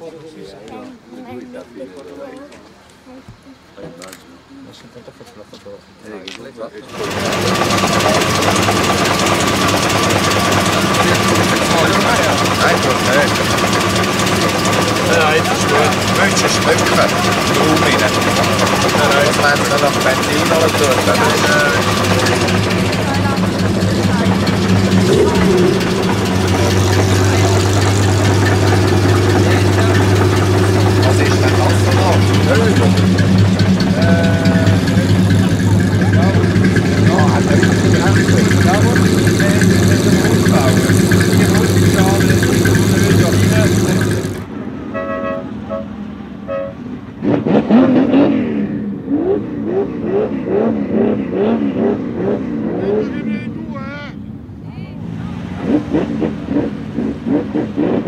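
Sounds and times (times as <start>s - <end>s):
car engine idling: 6.8s - 44.6s.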